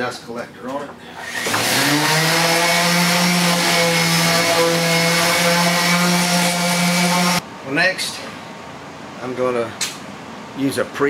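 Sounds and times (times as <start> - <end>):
orbital sander humming: 1.6 - 7.4.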